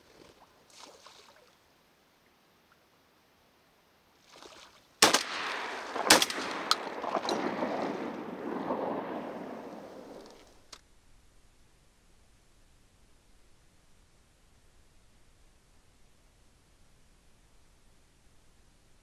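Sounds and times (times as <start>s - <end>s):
shotgun shots: 5.0s - 10.4s.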